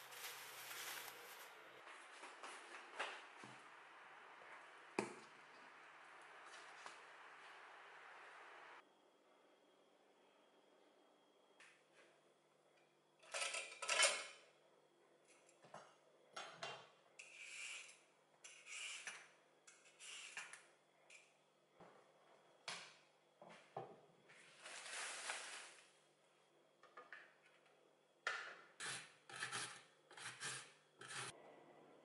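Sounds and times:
peeler scraping carrot: 28.8s - 31.3s.

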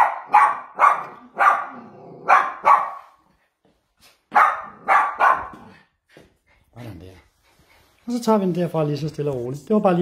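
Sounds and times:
young dog barking: 0.0s - 3.1s, 4.3s - 5.7s.

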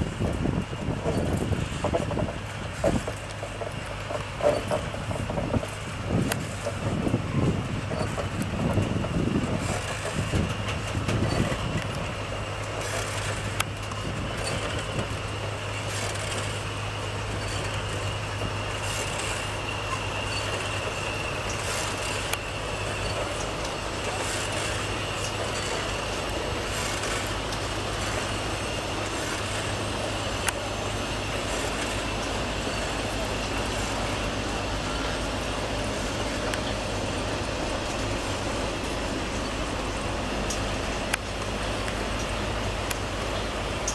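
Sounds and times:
diesel locomotive engine drone: 0.0s - 43.9s.

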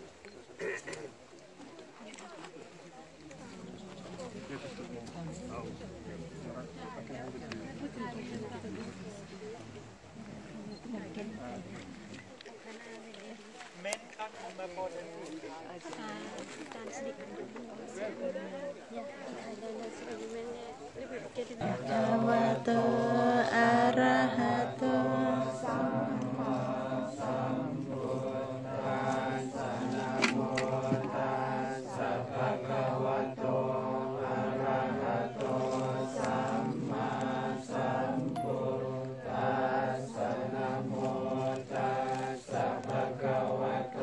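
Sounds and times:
monks chanting in unison: 21.5s - 44.0s.

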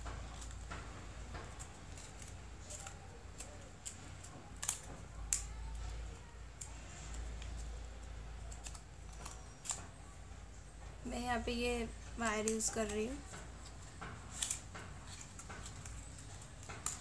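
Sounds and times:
paper crinkling and rustling: 12.2s - 17.0s.

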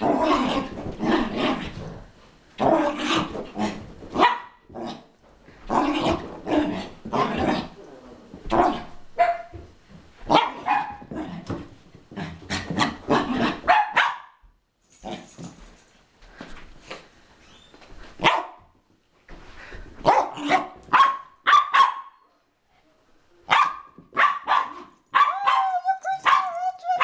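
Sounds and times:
dog barking excitedly: 4.1s - 4.6s, 8.5s - 9.6s, 10.3s - 11.1s, 12.5s - 14.4s, 18.2s - 18.6s, 20.0s - 22.2s, 23.5s - 27.0s.

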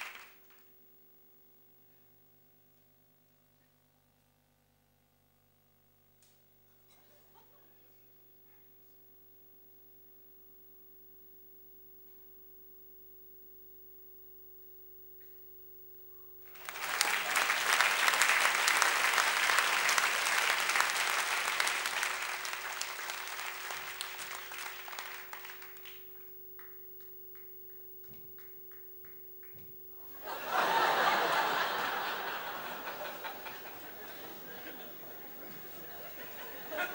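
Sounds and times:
audience applause: 0.0s - 0.4s, 16.5s - 26.7s, 29.5s - 36.9s
scattered claps: 0.0s - 0.7s, 16.5s - 36.9s
faint steady hum: 0.0s - 36.9s.

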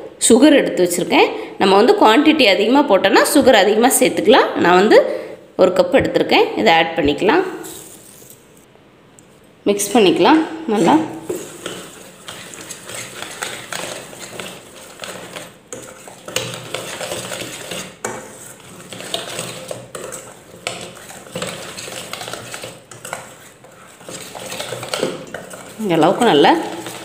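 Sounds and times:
whisk scraping metal bowl: 10.7s - 27.0s.

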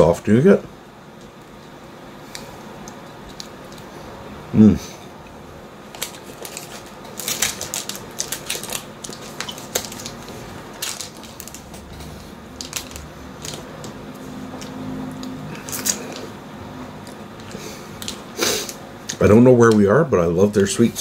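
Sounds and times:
foil wrapper crackling: 5.8s - 14.0s, 14.6s - 16.2s.

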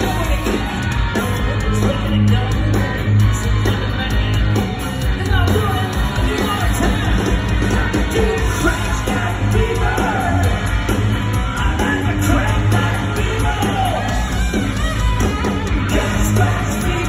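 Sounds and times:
live rock band playing: 0.0s - 17.0s
person yelling and singing: 8.1s - 10.6s, 11.6s - 14.3s.

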